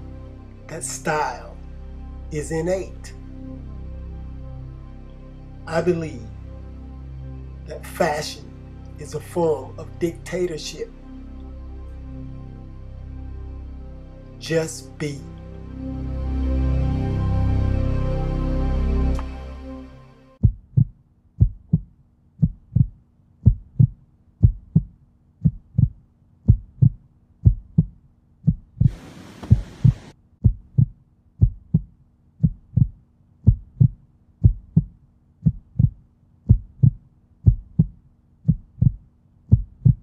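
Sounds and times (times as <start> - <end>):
heartbeat thumps: 20.4 - 40.0
hiss burst: 28.9 - 30.1.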